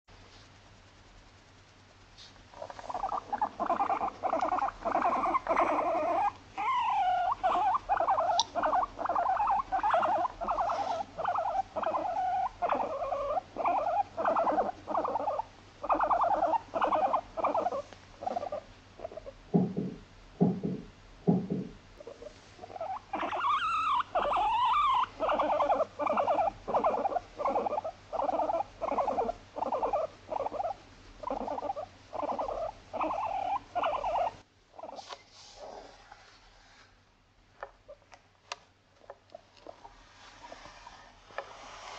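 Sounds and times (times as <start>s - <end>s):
guinea pig short calls: 2.5s - 19.4s, 22.0s - 35.9s
guinea pig squealing: 2.5s - 19.4s, 22.0s - 35.9s, 39.0s - 41.0s.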